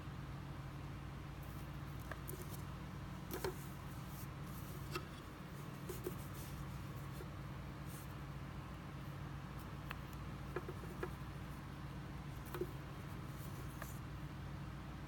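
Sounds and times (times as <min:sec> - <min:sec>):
steady low hum: 0:00.0 - 0:15.0
fingers clicking and scraping cord: 0:01.5 - 0:07.3, 0:09.8 - 0:11.4, 0:12.4 - 0:14.0.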